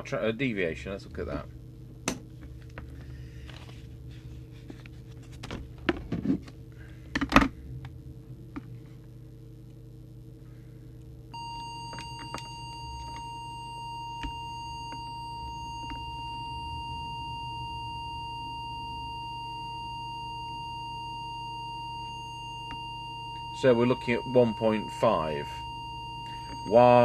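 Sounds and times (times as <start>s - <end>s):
low electrical hum: 0.0s - 27.0s
steady test tone: 11.3s - 27.0s.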